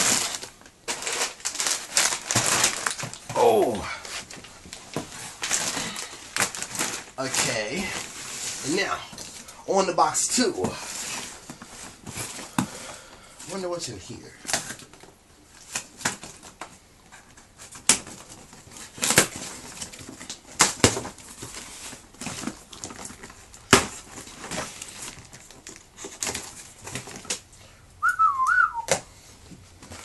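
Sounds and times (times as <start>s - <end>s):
packing tape ripping off cardboard: 0.0s - 8.8s, 17.6s - 27.4s
wavering whistle: 28.0s - 28.9s.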